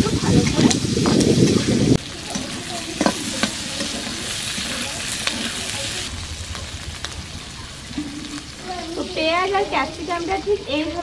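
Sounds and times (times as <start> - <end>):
vegetables sizzling in hot oil: 0.0 - 11.0
metal spatula scraping pan: 2.2 - 6.1.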